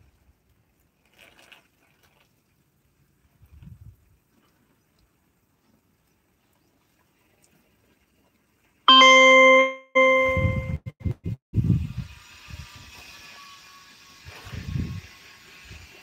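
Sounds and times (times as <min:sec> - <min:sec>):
loud bell-like ringing tone: 0:08.9 - 0:10.9.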